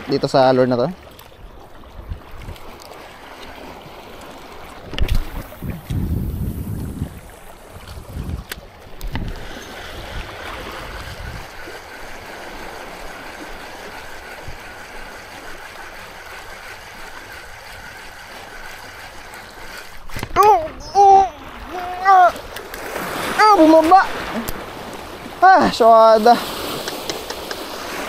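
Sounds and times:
water lapping over rocks: 0.0 - 28.0
wind buffeting the microphone: 1.4 - 2.8, 4.8 - 11.7
sharp clicks: 26.7 - 27.8.

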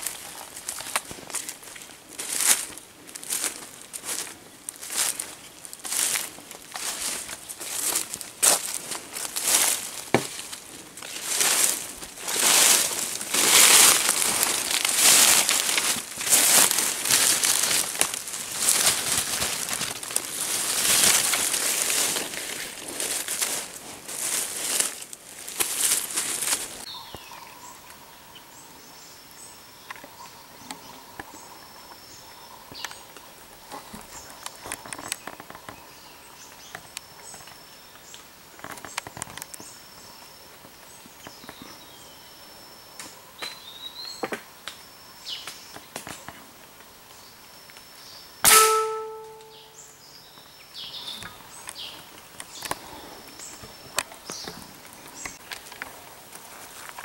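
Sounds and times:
leaves rustling: 0.0 - 28.1, 48.4 - 49.9, 50.8 - 57.0
loud gunshot: 48.4 - 49.2
short bird calls: 48.4 - 49.9.

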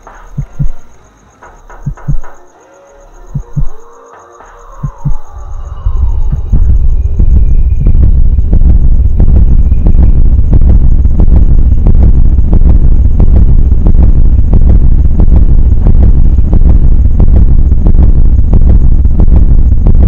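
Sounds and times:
irregular crackles and clicks: 0.0 - 2.6
loud low rumble: 3.0 - 20.0.

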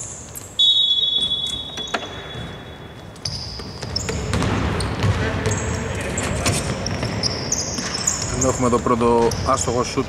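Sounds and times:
sneakers squeaking: 0.0 - 10.0
basketball bouncing on floor: 3.2 - 8.1.

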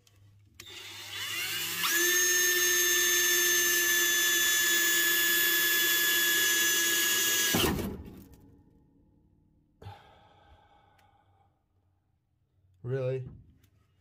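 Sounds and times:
electric drill whining: 0.6 - 7.8.

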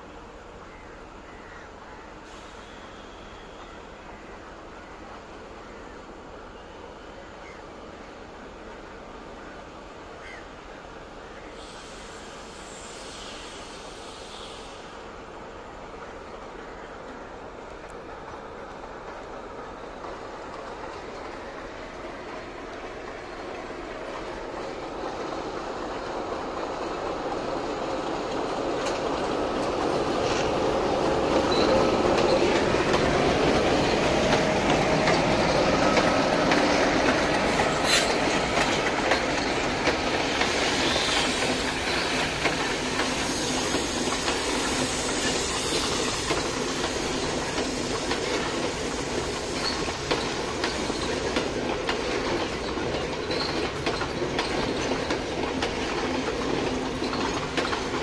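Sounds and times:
diesel locomotive rolling past: 0.0 - 58.0
train wheels clicking over rail joints: 17.0 - 58.0.

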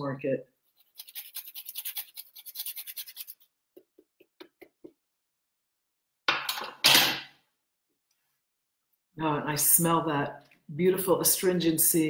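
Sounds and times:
hand grater zesting lemon: 0.8 - 3.4.

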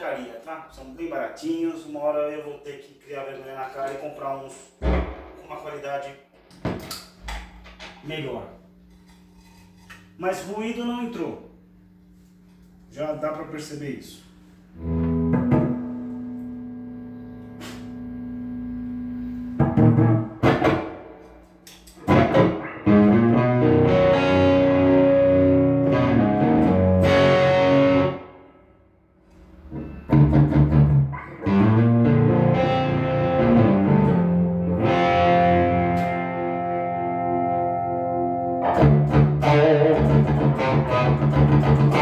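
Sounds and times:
electric guitar chords: 14.7 - 28.7, 29.4 - 42.0.

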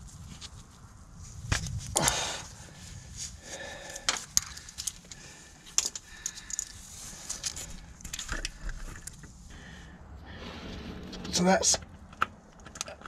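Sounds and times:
metal scrape: 10.2 - 11.9.

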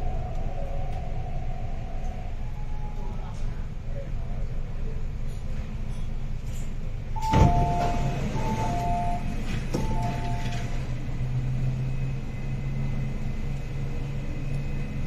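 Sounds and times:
train carriage rumble: 0.0 - 15.0
falling two-note warning beep: 7.2 - 10.9.

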